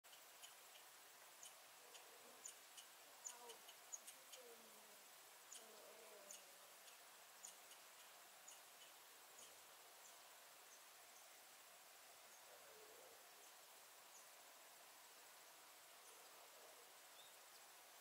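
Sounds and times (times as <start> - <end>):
faint high-pitched chirps: 0.1 - 11.4.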